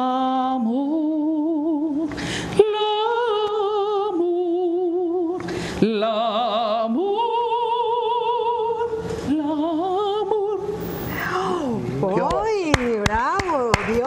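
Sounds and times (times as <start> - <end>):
woman singing operatically: 0.0 - 14.0
singer breathing: 2.1 - 2.6, 5.4 - 5.8, 10.8 - 11.8.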